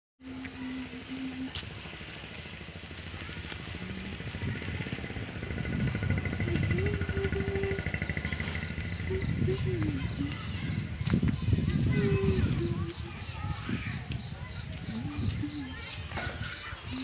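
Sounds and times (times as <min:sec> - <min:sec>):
engine running with rapid pulsing: 0:00.2 - 0:13.1.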